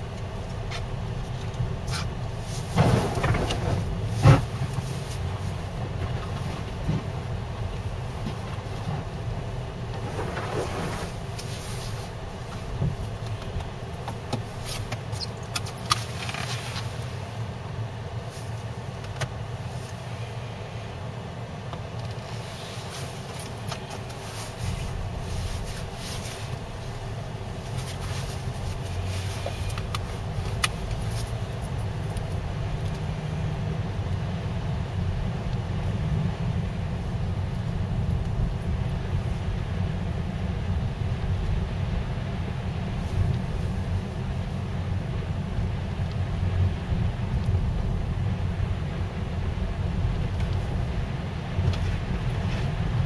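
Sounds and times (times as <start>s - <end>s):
car engine and tyres rumbling: 0.0s - 53.0s.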